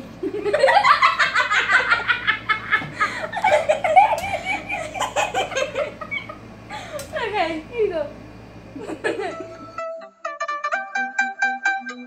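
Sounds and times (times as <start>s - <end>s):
girls laughing: 0.2s - 7.3s, 8.8s - 9.8s.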